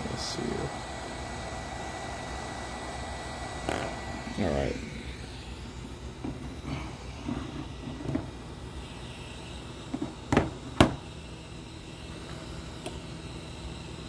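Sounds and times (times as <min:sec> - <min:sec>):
steady low hum: 0:00.0 - 0:14.0
tools knocking on workbench: 0:10.0 - 0:11.0.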